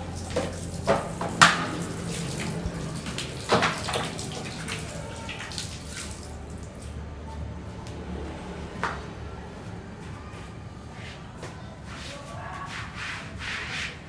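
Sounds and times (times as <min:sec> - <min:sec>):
plastic basins clattering: 0:00.0 - 0:05.9
tap water splashing into basin: 0:00.0 - 0:06.9.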